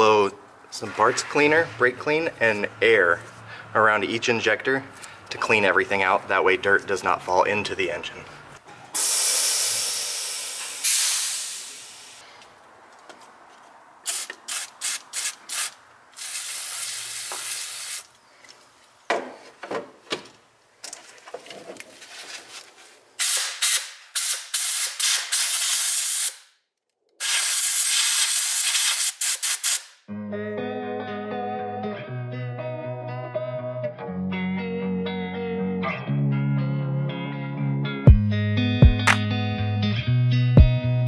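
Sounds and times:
aerosol spray hissing: 9.0 - 12.2, 14.1 - 18.1, 27.2 - 29.8
compressed air blow gun puffs: 9.0 - 12.5.

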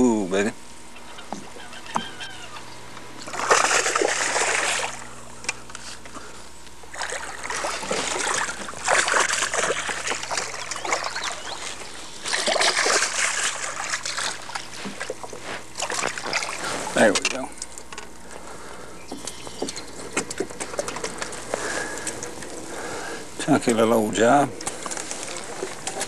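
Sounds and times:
fish splashing in water: 3.2 - 5.1, 6.9 - 16.7.

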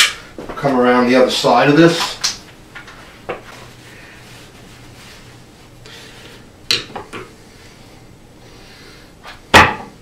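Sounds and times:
knocks on wooden shelf: 9.6 - 9.9.

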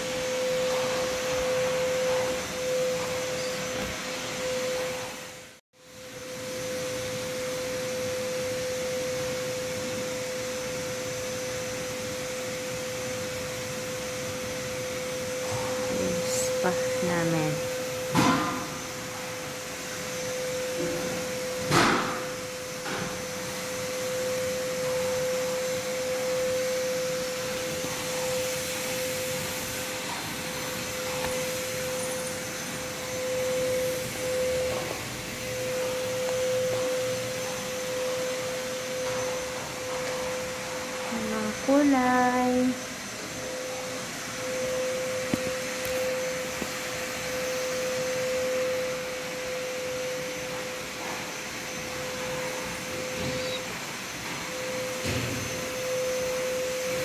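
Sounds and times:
electric motor humming: 12.6 - 57.0.

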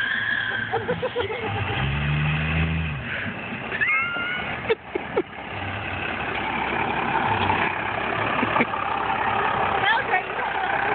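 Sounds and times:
low engine drone: 0.0 - 10.9
road vehicle noise: 0.0 - 10.9
short rising squeal: 3.7 - 4.5.

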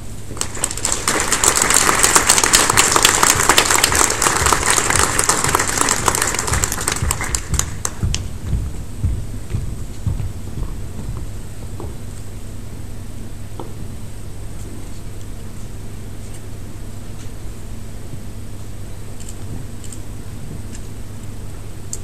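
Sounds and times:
audience applauding: 0.3 - 8.2.

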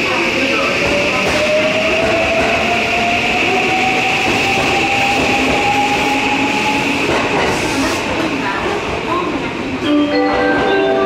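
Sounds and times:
moving train rumbling: 0.0 - 11.0.

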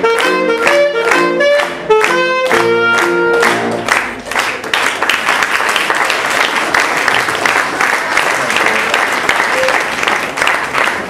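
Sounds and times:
music: 0.0 - 4.4
audience applauding: 0.0 - 11.0.

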